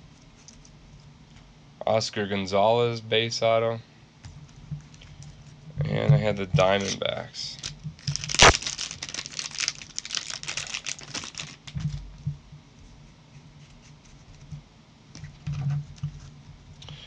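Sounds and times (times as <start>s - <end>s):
plastic sleeves crinkling: 6.8s - 12.0s.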